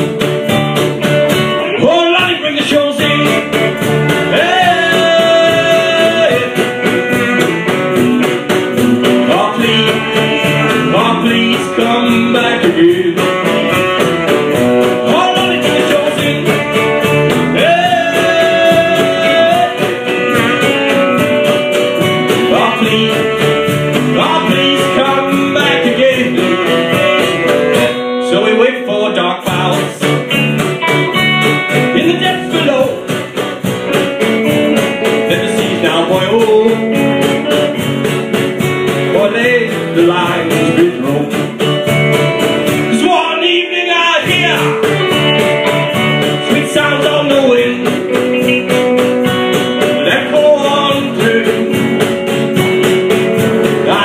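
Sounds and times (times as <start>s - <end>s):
cajon: 0.0s - 28.1s, 29.4s - 43.4s, 44.1s - 54.0s
electric bass: 0.0s - 54.0s
electric guitar: 0.0s - 54.0s
strummed acoustic guitar: 0.0s - 54.0s
lead vocal singing: 1.6s - 6.8s, 9.1s - 13.7s, 15.0s - 20.8s, 22.2s - 30.2s, 35.2s - 37.2s, 39.0s - 41.6s, 42.8s - 45.1s, 46.3s - 48.1s, 49.9s - 51.9s, 53.7s - 54.0s
saxophone: 3.3s - 25.4s, 26.0s - 28.4s.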